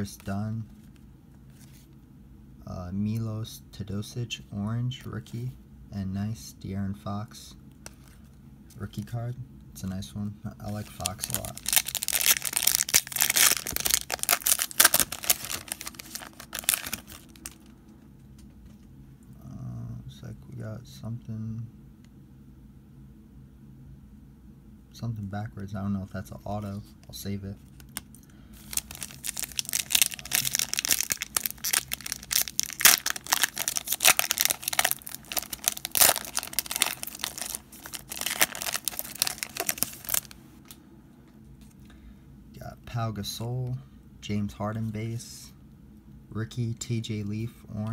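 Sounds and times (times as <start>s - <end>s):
foil wrapper crinkling and tearing: 10.7s - 17.7s, 27.7s - 40.4s.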